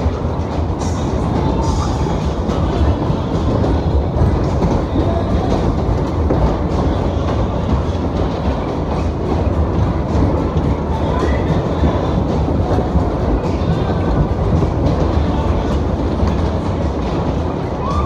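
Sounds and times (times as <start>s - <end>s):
ride wheels rumbling on track: 0.0s - 18.0s.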